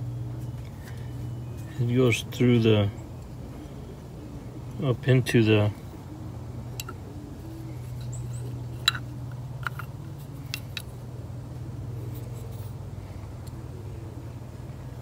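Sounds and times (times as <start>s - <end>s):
metal parts clicking: 8.0s - 10.9s.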